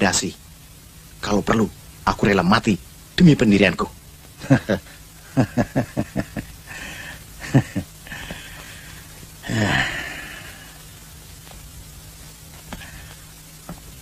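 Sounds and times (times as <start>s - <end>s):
man laughing: 4.4s - 8.4s, 9.4s - 10.3s.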